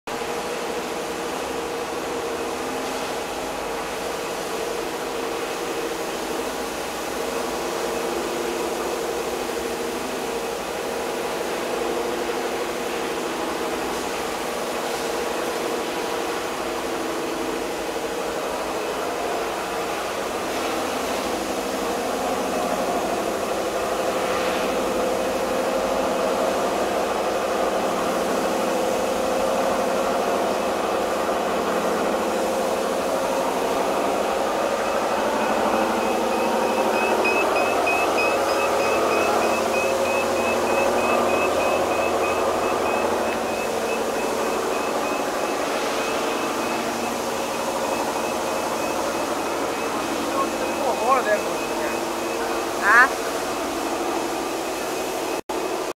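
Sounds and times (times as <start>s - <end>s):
cold press motor humming: 31.9s - 55.4s.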